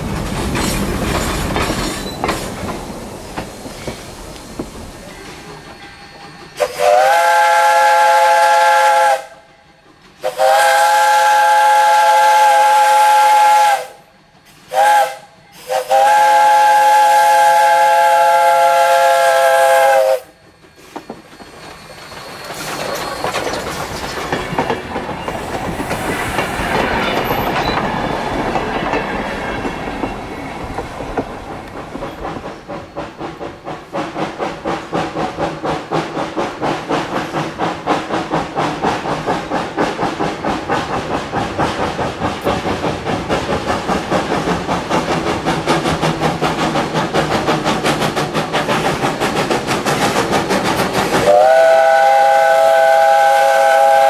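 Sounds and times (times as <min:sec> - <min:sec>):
steam hiss: 0:00.0 - 0:28.5, 0:30.0 - 0:54.0
train wheels clattering: 0:00.0 - 0:54.0
steam locomotive whistle: 0:06.5 - 0:09.5, 0:10.2 - 0:21.0, 0:51.1 - 0:54.0
locomotive running noise: 0:16.8 - 0:54.0.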